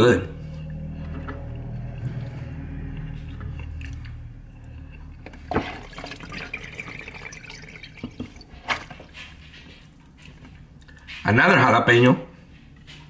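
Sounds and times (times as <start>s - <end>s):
liquid dripping and splashing: 5.2s - 9.5s.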